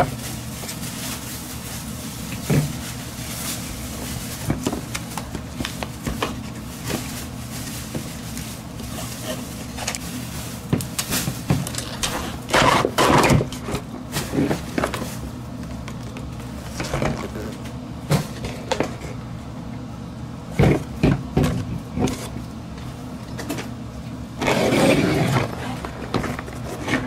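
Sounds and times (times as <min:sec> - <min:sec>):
steady low hum: 0:00.0 - 0:27.0
cardboard sliding against cardboard: 0:24.4 - 0:27.0.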